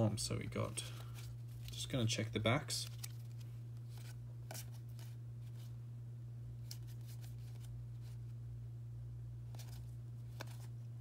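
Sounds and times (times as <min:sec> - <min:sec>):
steady low hum: 0:00.0 - 0:11.0
cards flicking and rustling: 0:00.6 - 0:05.7, 0:06.6 - 0:08.3, 0:09.4 - 0:10.9.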